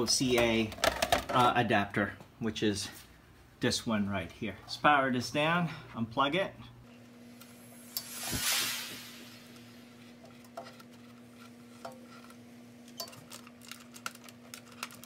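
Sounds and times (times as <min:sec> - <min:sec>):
connectors clicking and rattling: 0:12.9 - 0:15.0.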